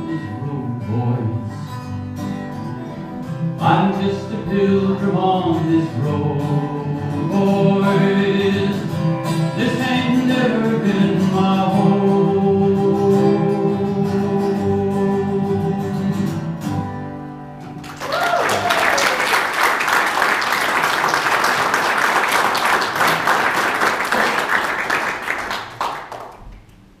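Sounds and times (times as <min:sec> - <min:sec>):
strummed acoustic guitar: 0:00.0 - 0:17.9
audience applause: 0:17.7 - 0:26.7
rising shout: 0:18.0 - 0:19.4.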